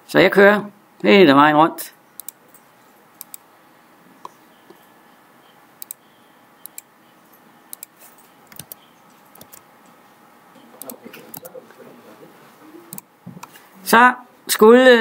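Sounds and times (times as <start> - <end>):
mouse and keyboard clicks: 2.2 - 2.4, 5.8 - 6.0, 6.6 - 6.9, 7.7 - 9.6, 10.8 - 11.5.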